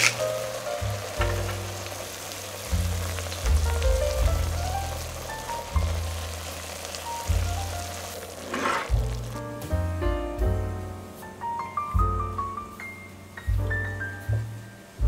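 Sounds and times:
vegetables sizzling in a pot: 0.0 - 9.7
soft background music: 0.0 - 15.0
spatula stirring: 8.1 - 9.4.

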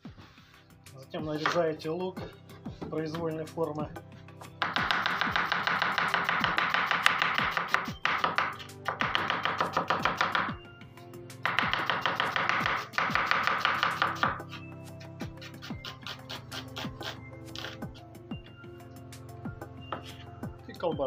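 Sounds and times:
background music: 0.0 - 21.0
knife chopping on wooden board: 4.5 - 10.6, 11.4 - 14.6.

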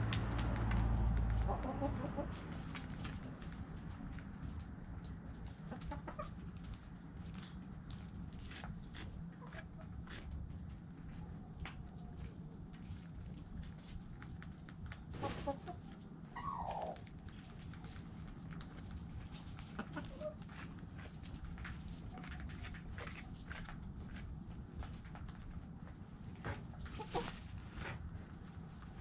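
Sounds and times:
chickens clucking: 1.3 - 6.9, 8.5 - 10.3, 15.0 - 24.2, 25.8 - 28.0.

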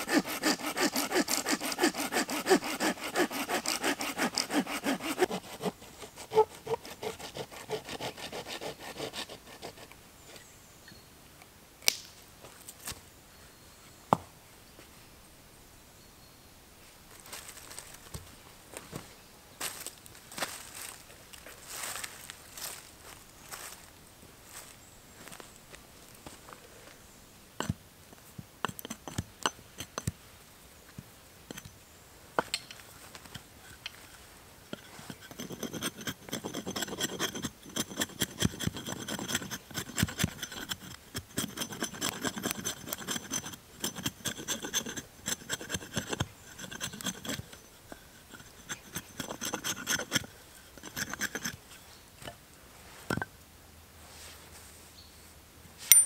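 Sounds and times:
knife scraping bark off stick: 0.0 - 9.9, 34.8 - 51.8.

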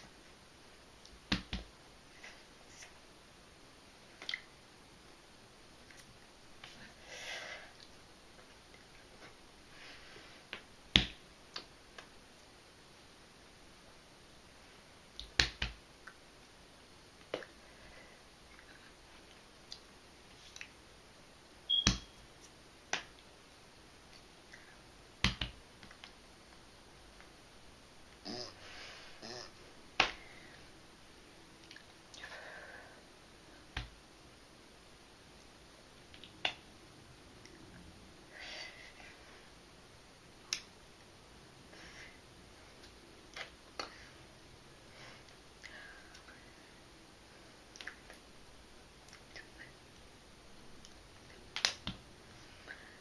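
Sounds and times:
hands slapping: 1.1 - 1.7, 10.5 - 12.1, 15.2 - 15.8, 21.7 - 22.1, 22.9 - 23.2, 25.2 - 26.2, 30.0 - 30.2, 36.1 - 36.6, 51.5 - 52.0.

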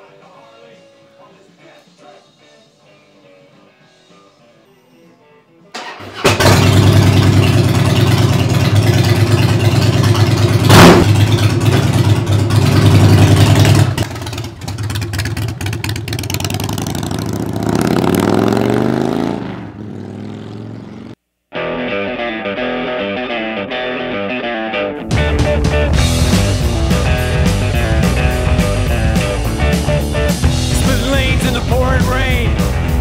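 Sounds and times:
motorcycle engine starting and revving: 5.8 - 21.2.

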